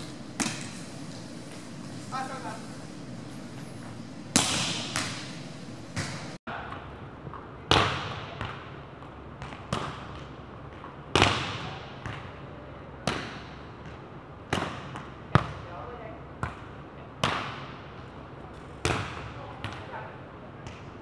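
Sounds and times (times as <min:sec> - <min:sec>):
hands slapping volleyball: 0:00.4 - 0:00.9, 0:04.3 - 0:06.3.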